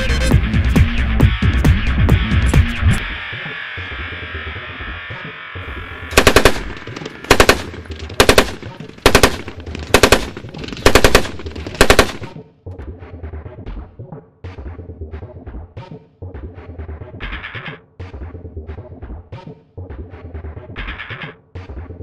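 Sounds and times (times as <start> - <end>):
machine gun firing bursts: 6.1 - 12.4.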